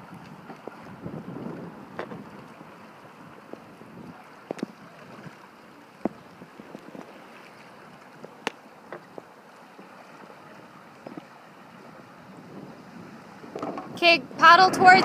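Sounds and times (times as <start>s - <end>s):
lake water lapping: 0.0s - 15.0s
sharp slaps of water: 8.2s - 9.9s.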